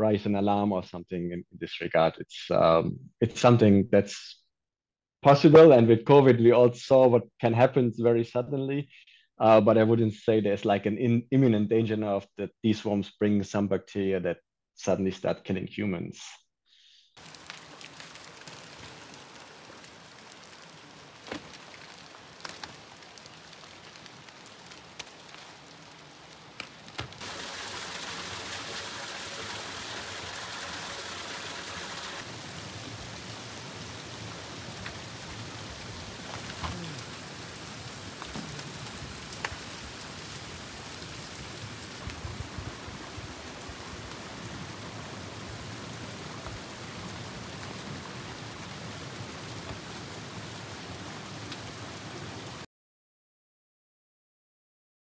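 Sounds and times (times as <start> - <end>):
trickling water hiss: 17.2 - 26.6, 27.2 - 52.2.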